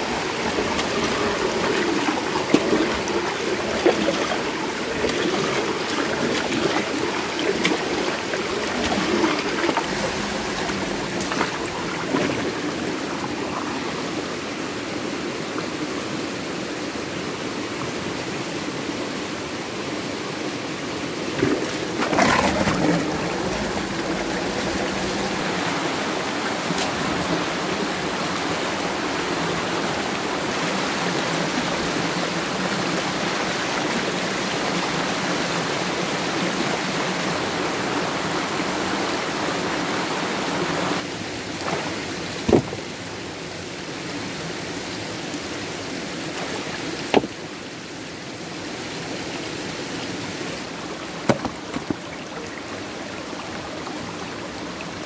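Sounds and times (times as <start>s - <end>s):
stream water rushing: 0.0s - 55.0s
knocks and splashes: 0.4s - 13.0s, 21.3s - 25.6s, 41.6s - 43.0s, 46.4s - 47.5s, 51.1s - 52.4s.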